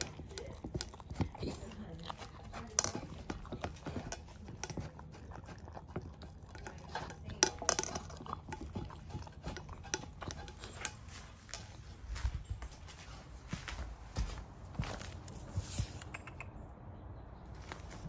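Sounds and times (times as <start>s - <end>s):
dog eating from metal bowl: 0.0s - 12.5s.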